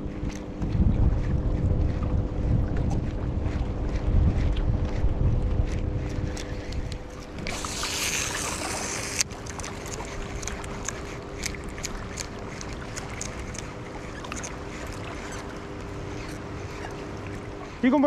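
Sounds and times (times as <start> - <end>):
steady low hum: 0.0 - 18.0
fishing reel spool whirring: 4.7 - 18.0
flowing river water: 5.6 - 18.0
reel ticking: 5.6 - 18.0.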